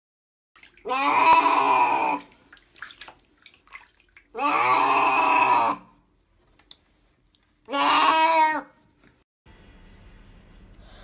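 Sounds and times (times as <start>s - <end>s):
faint water splashing: 0.6s - 4.6s.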